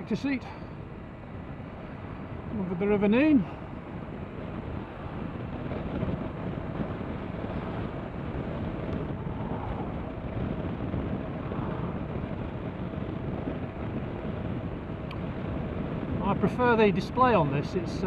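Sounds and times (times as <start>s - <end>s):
motorcycle running: 0.0s - 18.0s
wind rushing on microphone: 0.0s - 18.0s.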